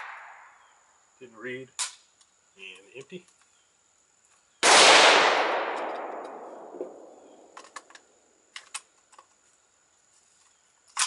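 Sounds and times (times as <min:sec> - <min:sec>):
loud gunshot echoing: 0:04.6 - 0:07.6
rifle handling clicks: 0:05.6 - 0:06.5.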